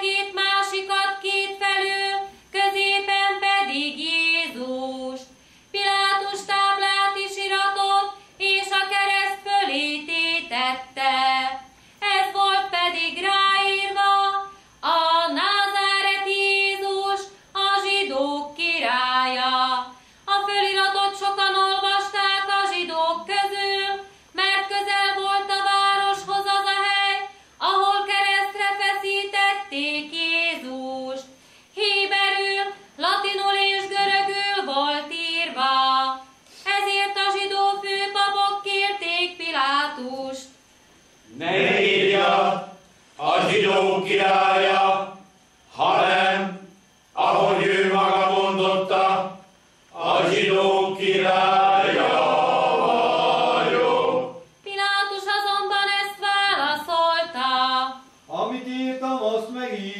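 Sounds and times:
woman singing a hymn: 0.0s - 40.6s, 54.6s - 58.2s.

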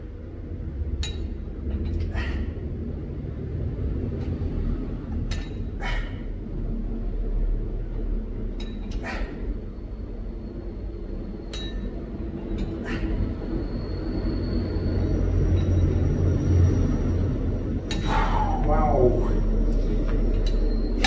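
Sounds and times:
steady low rumble: 0.0s - 21.0s.

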